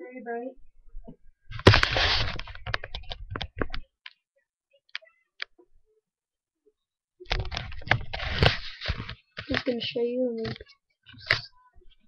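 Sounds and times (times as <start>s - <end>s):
computer handling rubbing and knocking: 1.5s - 3.8s, 7.3s - 9.7s.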